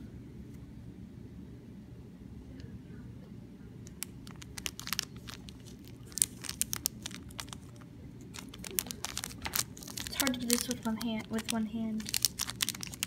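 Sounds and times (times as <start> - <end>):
low steady hum: 0.0 - 13.0
plastic bag crinkling: 3.9 - 13.0.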